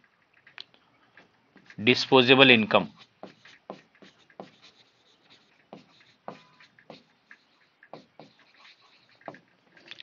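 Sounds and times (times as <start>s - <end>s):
chalk scratching on a chalkboard: 2.7s - 9.4s.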